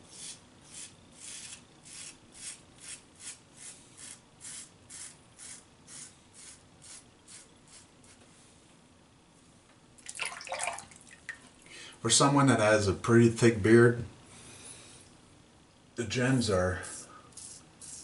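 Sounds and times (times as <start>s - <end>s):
razor scraping stubble: 0.1s - 8.2s
water splash: 10.0s - 11.0s.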